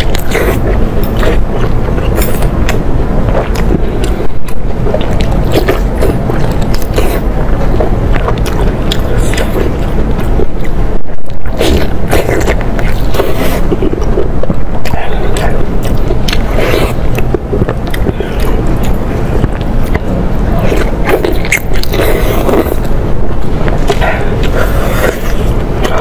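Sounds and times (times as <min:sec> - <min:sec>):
low rumble: 0:00.0 - 0:26.0
person chewing: 0:00.0 - 0:26.0.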